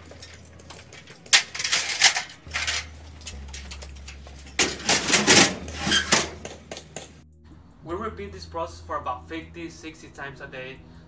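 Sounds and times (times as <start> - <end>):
metal stepladder and tools rattling: 0.0 - 7.2.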